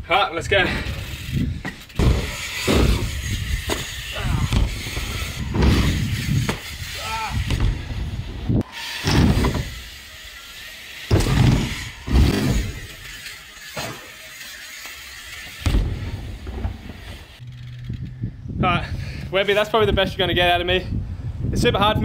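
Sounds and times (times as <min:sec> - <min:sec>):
bike tyres rolling on wood: 0:00.8 - 0:18.0
bike landing thumps: 0:01.5 - 0:09.8, 0:11.1 - 0:14.2, 0:14.8 - 0:17.4.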